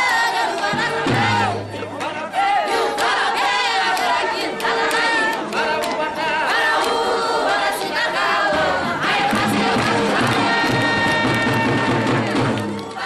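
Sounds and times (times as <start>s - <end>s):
sharp percussive beats: 0.0s - 4.8s, 8.2s - 13.0s
crowd singing together: 0.0s - 13.0s.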